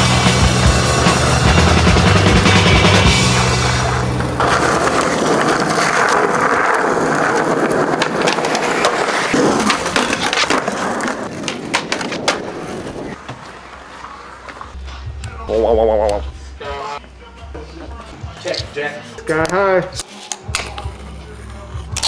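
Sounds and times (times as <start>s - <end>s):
skateboard wheels rolling on concrete: 0.0s - 17.0s
skateboard clacks: 2.8s - 13.4s.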